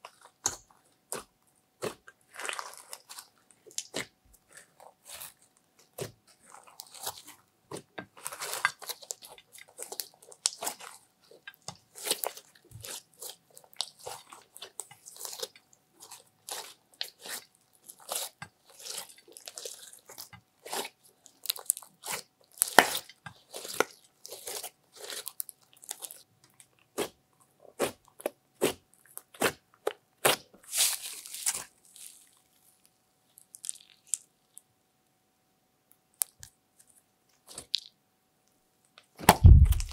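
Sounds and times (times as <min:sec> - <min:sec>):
sticky slime crackles and clicks: 0:08.1 - 0:27.2, 0:33.4 - 0:34.6, 0:39.0 - 0:39.9.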